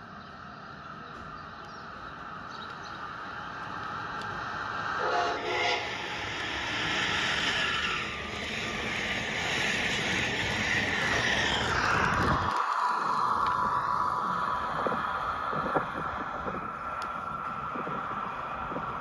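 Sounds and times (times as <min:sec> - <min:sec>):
short horn-like tone: 0:05.0 - 0:05.9
toy train motor whirring: 0:05.1 - 0:15.8
wheel clatter on track: 0:06.2 - 0:19.0.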